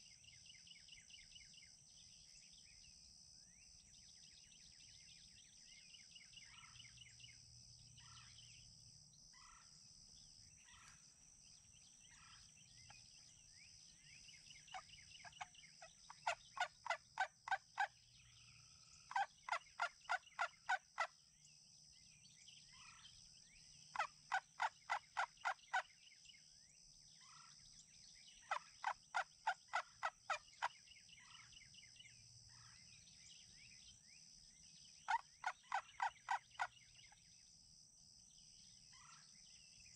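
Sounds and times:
small bird chirps: 0:00.0 - 0:37.6, 0:38.3 - 0:39.9
wild turkey yelping: 0:09.4 - 0:09.7, 0:10.6 - 0:11.0, 0:12.1 - 0:13.0, 0:14.7 - 0:18.0, 0:19.0 - 0:21.1, 0:24.0 - 0:25.8, 0:28.4 - 0:31.4, 0:35.1 - 0:36.8.

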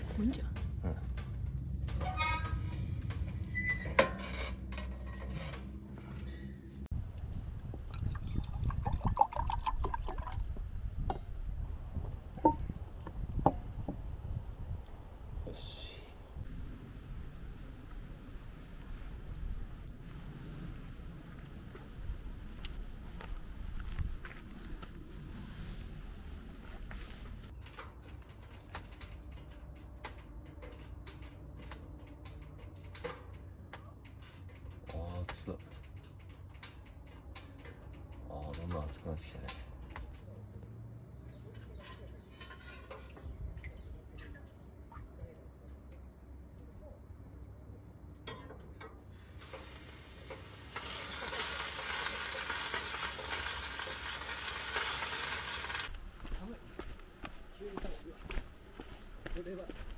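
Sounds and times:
water sizzling on hot stones: 0:49.1 - 0:55.9
firewood crackling and popping: 0:49.2 - 0:57.1.

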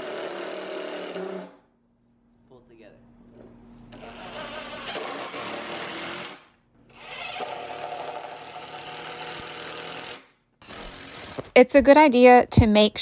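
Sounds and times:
impact driver driving screws into wood: 0:04.0 - 0:11.6.

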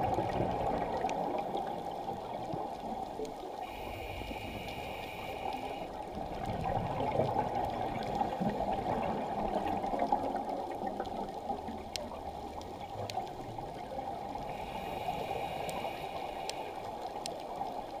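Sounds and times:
bubbles gurgling underwater: 0:00.0 - 0:03.2, 0:06.0 - 0:14.4
faint thin steady tone: 0:01.1 - 0:06.0, 0:13.2 - 0:17.9.

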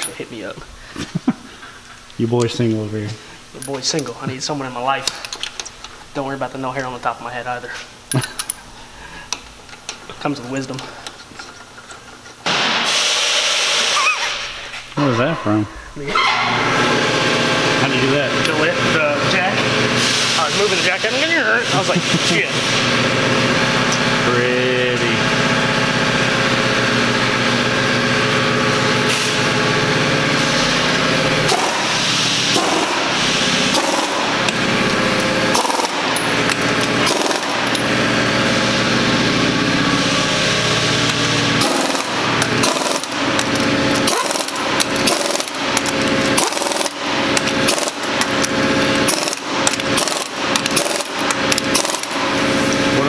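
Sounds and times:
pneumatic impact wrench hammering: 0:11.8 - 0:14.7, 0:28.6 - 0:53.0.

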